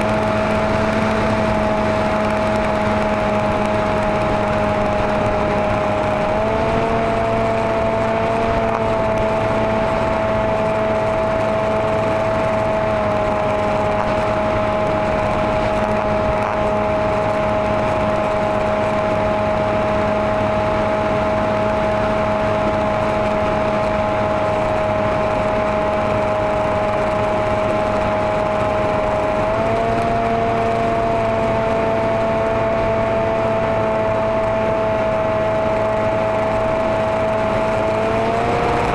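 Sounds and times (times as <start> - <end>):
model aircraft motor whine: 0.0 - 38.9
wind rush: 0.0 - 38.9.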